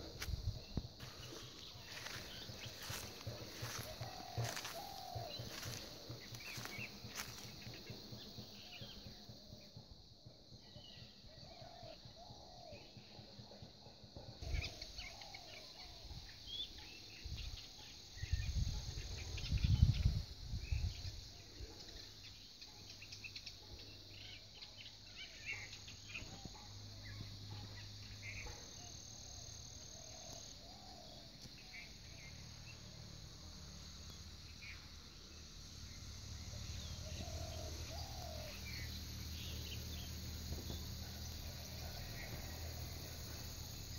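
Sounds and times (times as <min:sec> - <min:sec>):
high insect buzz: 0:00.0 - 0:08.0
birds chirping and calling: 0:00.0 - 0:09.0, 0:36.4 - 0:40.1.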